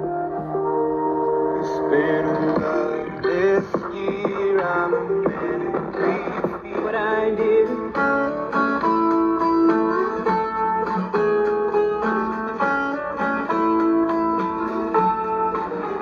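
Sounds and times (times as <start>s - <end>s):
plucked guitar music from radio: 0.0s - 16.0s.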